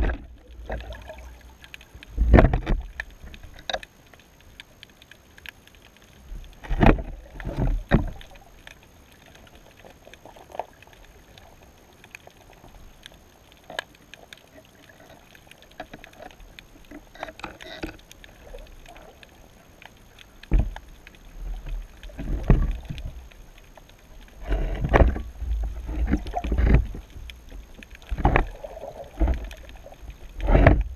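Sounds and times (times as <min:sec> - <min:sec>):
faint underwater clicks and crackles: 0:00.0 - 0:30.9.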